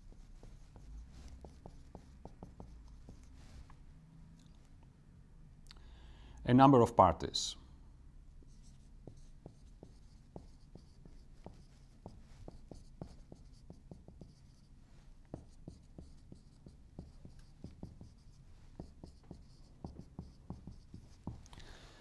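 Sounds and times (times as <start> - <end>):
marker writing on whiteboard: 0.0 - 3.7, 8.4 - 21.5.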